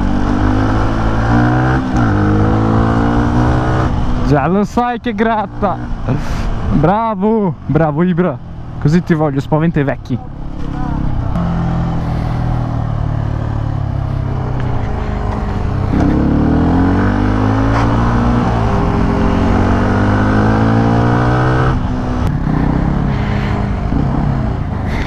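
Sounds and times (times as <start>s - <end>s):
motorcycle engine revving: 0.0s - 4.4s, 10.2s - 25.0s.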